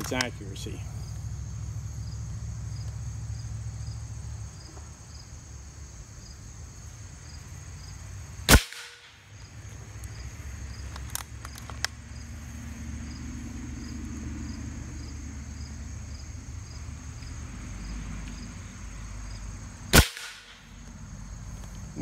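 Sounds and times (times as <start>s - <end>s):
air rifle shot: 8.5s - 9.2s, 19.9s - 20.8s.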